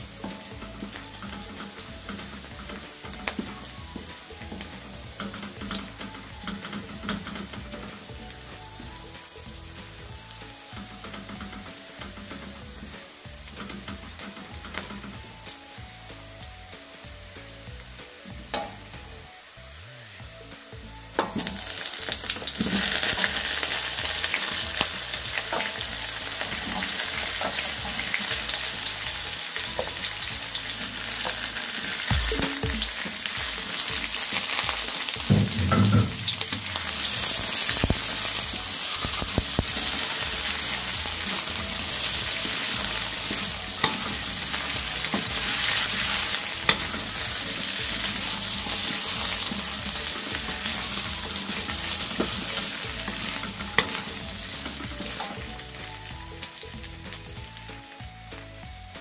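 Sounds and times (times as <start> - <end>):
potatoes sizzling in a wok: 0.0 - 59.0
wooden spatula scraping pan: 21.2 - 55.8.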